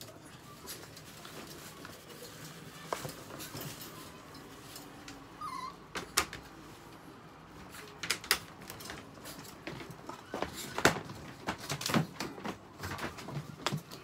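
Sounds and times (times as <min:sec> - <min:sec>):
dog whining: 0:05.4 - 0:05.9.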